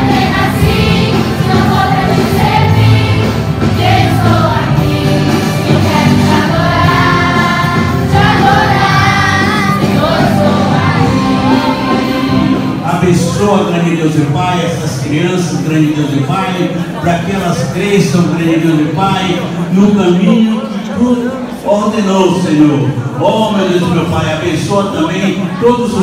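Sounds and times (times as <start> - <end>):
group singing worship song: 0.0 - 12.9
instrumental accompaniment: 0.0 - 14.4.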